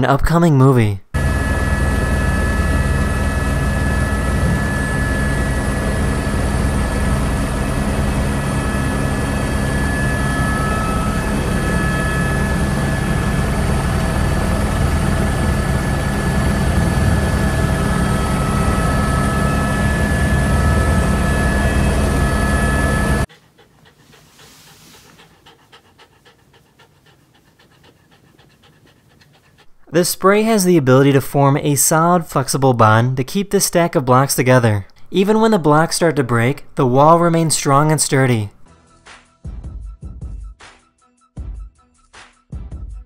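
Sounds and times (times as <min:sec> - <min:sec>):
helicopter engine and rotor noise: 0:01.2 - 0:23.3.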